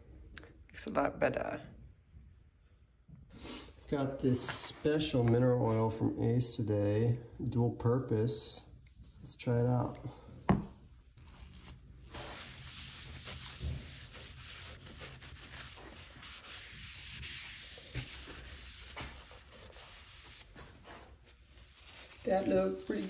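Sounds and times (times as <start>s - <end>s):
paper towel scrubbing board: 11.2s - 23.0s.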